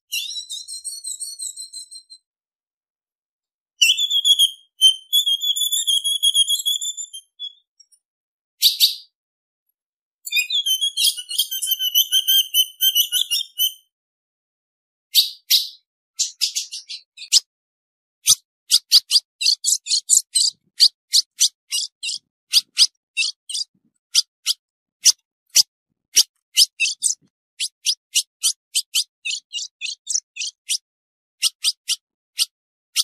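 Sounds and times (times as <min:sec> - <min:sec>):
bird sharp chips: 0:18.2 - 0:30.8.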